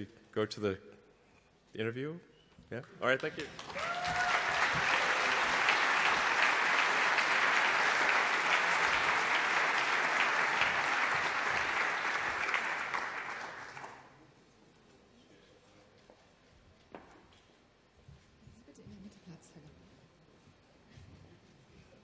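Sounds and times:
audience applauding: 0:03.0 - 0:14.1.

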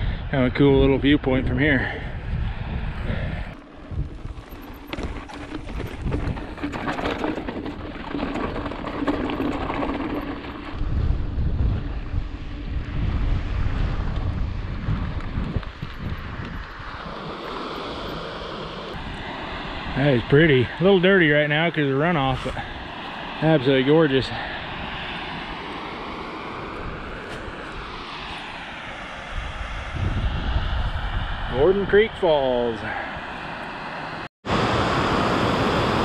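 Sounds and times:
wind buffeting microphone: 0:00.0 - 0:34.2
steady rushing hiss: 0:15.8 - 0:29.9.

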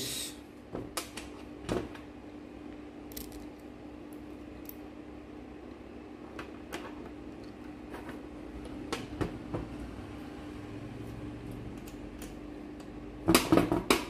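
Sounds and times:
steady hum: 0:00.0 - 0:14.0
small metal parts clicking: 0:03.1 - 0:03.6.

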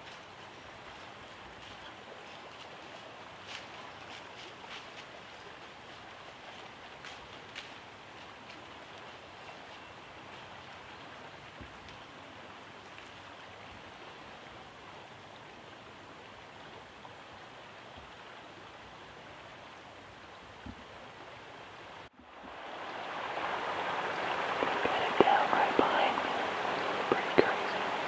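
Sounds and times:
river rushing: 0:18.4 - 0:28.0.

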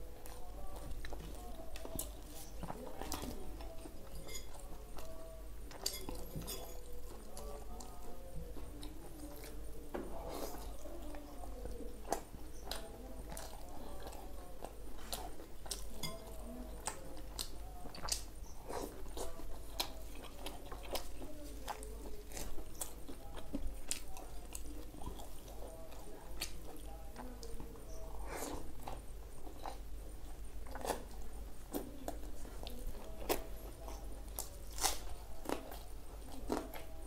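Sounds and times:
person chewing food: 0:00.0 - 0:37.0.

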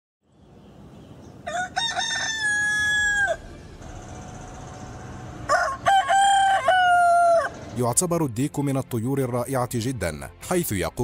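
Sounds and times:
rooster crowing: 0:01.4 - 0:07.8.

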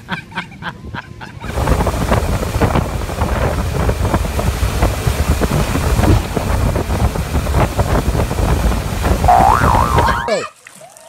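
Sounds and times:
wind buffeting microphone: 0:01.5 - 0:10.2
boat engine running: 0:01.5 - 0:10.3
churning water: 0:01.5 - 0:10.9.

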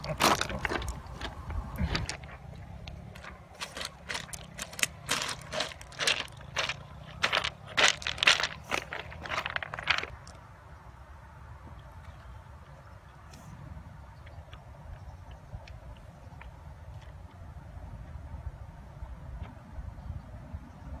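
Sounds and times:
footsteps on loose cobbles: 0:00.0 - 0:10.4.

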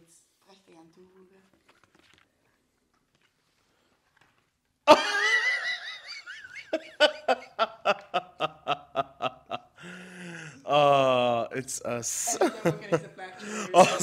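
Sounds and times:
high-pitched laughter: 0:04.9 - 0:09.6.

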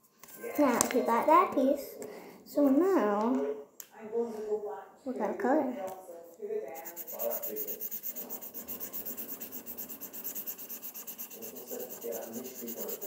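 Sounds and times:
marker scribbling on paper: 0:06.7 - 0:13.0.

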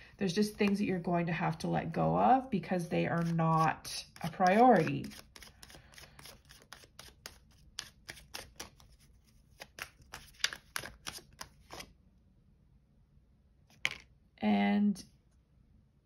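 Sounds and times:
cards being shuffled: 0:03.2 - 0:11.9.

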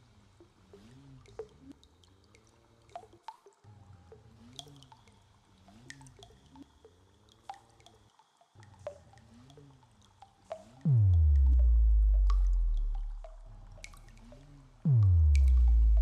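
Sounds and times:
water-drop plinks: 0:00.7 - 0:16.0
low ambient tones: 0:03.7 - 0:16.0.

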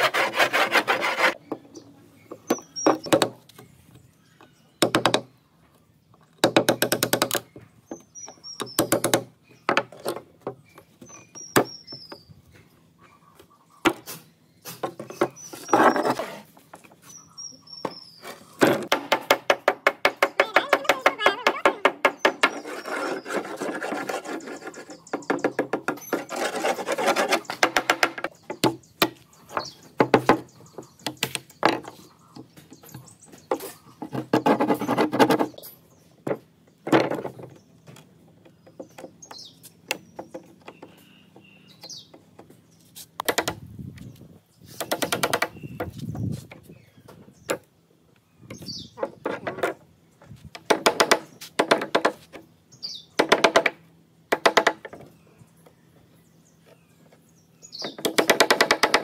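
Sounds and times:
hammer scraping along wood: 0:00.0 - 0:01.4, 0:18.3 - 0:28.4, 0:33.4 - 0:35.6.

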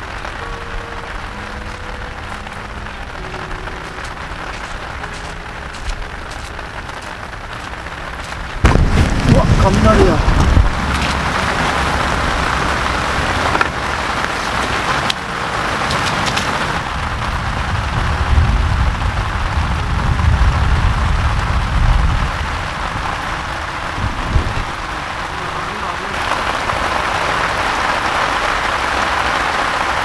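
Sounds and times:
heavy rain falling: 0:00.0 - 0:30.0
thunder rumbling: 0:00.0 - 0:30.0
sharp taps of raindrops: 0:01.3 - 0:17.4.

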